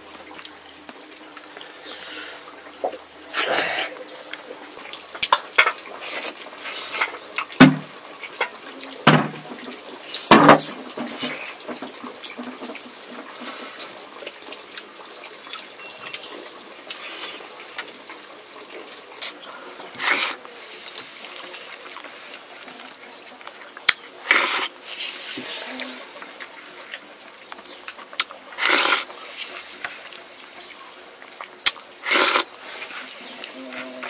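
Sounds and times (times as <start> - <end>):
water splashing and trickling: 0.0 - 34.0
sharp knocks: 7.6 - 7.9.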